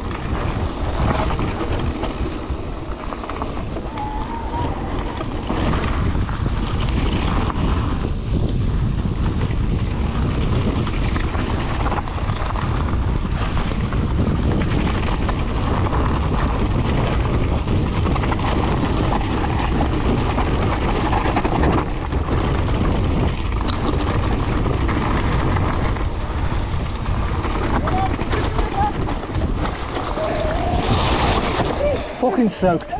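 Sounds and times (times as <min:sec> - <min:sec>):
bike rattling: 0:00.0 - 0:32.9
wind buffeting microphone: 0:00.0 - 0:32.9.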